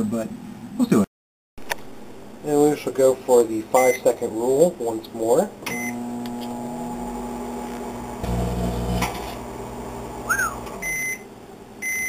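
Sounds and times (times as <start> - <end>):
microwave oven humming: 5.7 - 12.0.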